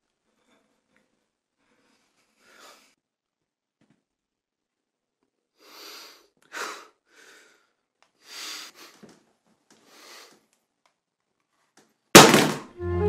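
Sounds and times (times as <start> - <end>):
man sniffling: 5.6 - 9.1, 9.8 - 10.4
man breathing heavily: 5.6 - 10.5.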